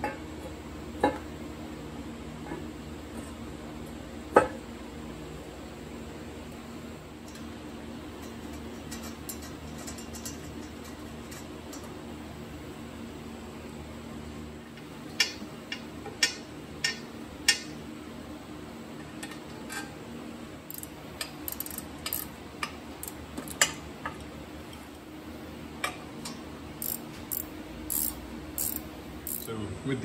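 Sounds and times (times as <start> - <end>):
metal parts clinking: 20.7 - 22.3, 26.8 - 29.5.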